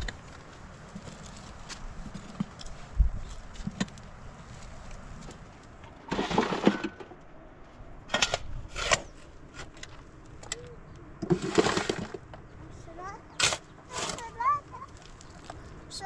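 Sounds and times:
shovel scraping through gravel: 6.1s - 7.0s, 8.2s - 9.7s, 11.3s - 12.2s, 13.4s - 14.4s.

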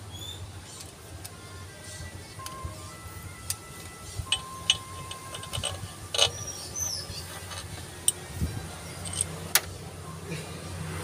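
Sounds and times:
low steady hum: 0.0s - 10.6s
metal bolts clinking: 4.3s - 8.2s, 8.9s - 9.7s.

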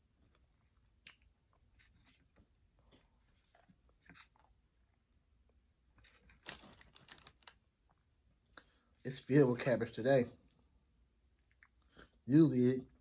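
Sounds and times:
chewing: 0.2s - 6.6s, 11.3s - 12.2s.

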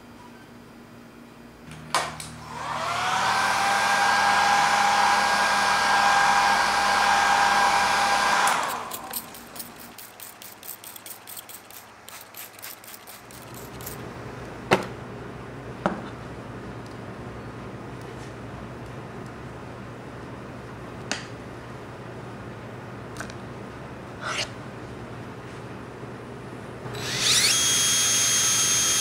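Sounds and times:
hot-air blower whining: 1.7s - 10.8s, 26.8s - 29.0s.

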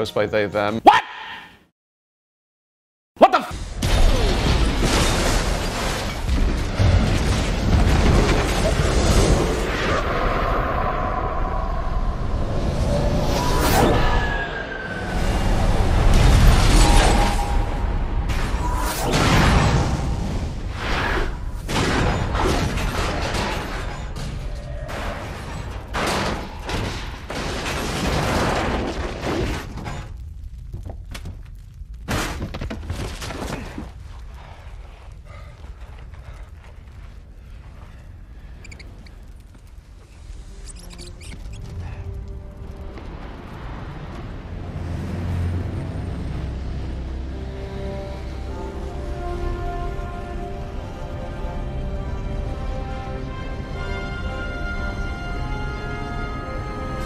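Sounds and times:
debris crashing: 3.6s - 9.8s, 21.6s - 34.3s
explosion blast and rumble: 3.6s - 14.0s, 15.0s - 35.4s
flying debris: 3.6s - 30.7s
deep rumble: 6.6s - 13.6s
dramatic music: 41.7s - 57.0s.

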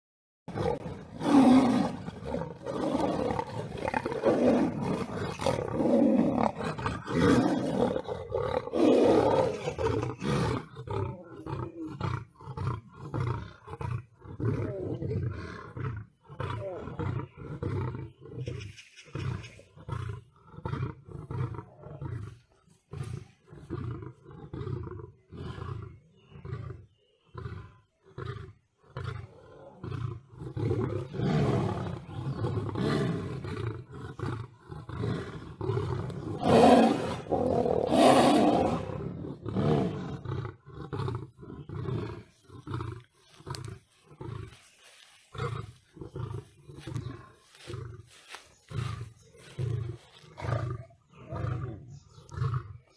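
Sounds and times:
big cats snarling and roaring: 0.5s - 52.9s.

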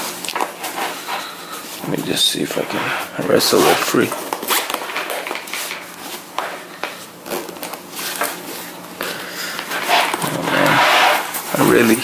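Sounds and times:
metal zipper being tugged: 9.8s - 11.4s.

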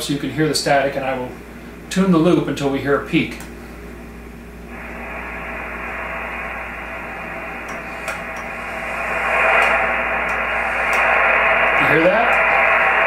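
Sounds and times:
radio receiver static hiss: 4.4s - 13.0s.

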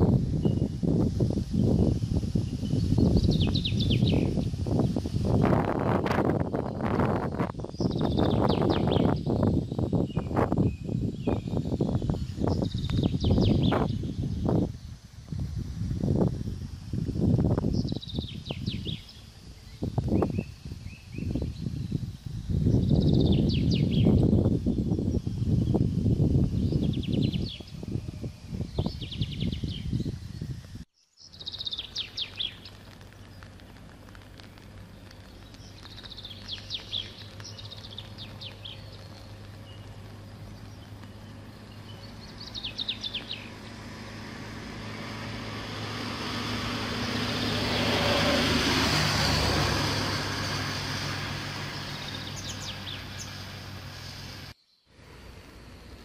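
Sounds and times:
small birds chirping: 0.0s - 44.0s, 50.4s - 56.0s
vehicle passing: 33.8s - 56.0s.

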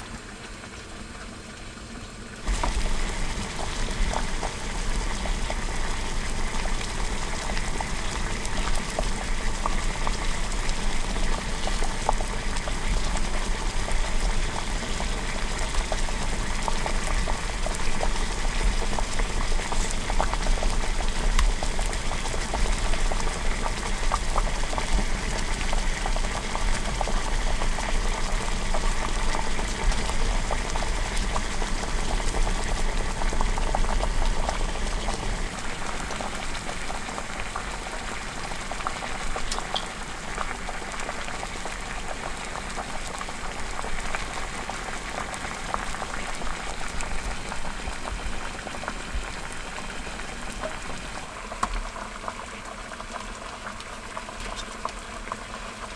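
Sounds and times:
water boiling hard in a pot: 0.0s - 55.9s.

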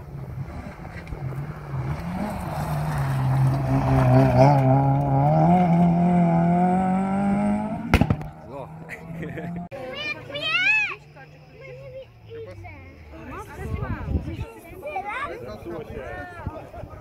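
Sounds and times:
rally car engine passing: 0.0s - 12.2s.

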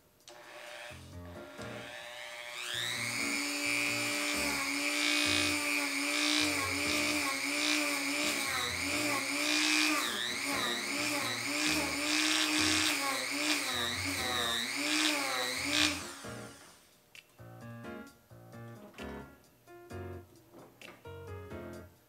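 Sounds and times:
rotary tool grinding plastic: 0.3s - 16.8s.

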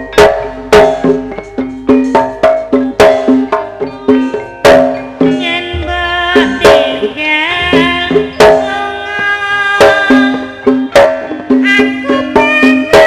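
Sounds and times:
struck bronze keyed instruments: 0.0s - 10.3s
hand drum strokes: 0.0s - 13.0s
wavering singing voice: 5.2s - 13.0s.

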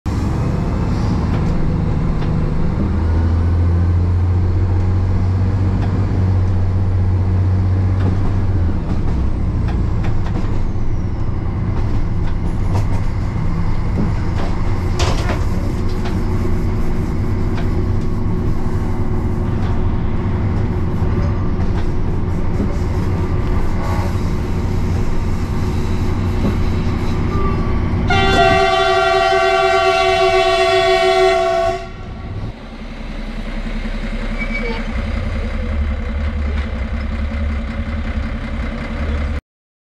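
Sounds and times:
train engine hum: 0.1s - 39.4s
wheels rumbling on rails: 0.1s - 39.4s
train horn: 23.7s - 24.3s, 27.3s - 32.4s.

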